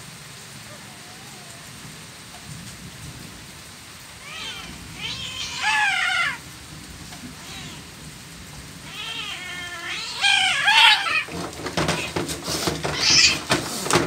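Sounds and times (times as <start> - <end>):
cats meowing: 0.7 - 1.8, 4.2 - 6.4, 7.1 - 8.0, 8.8 - 14.0.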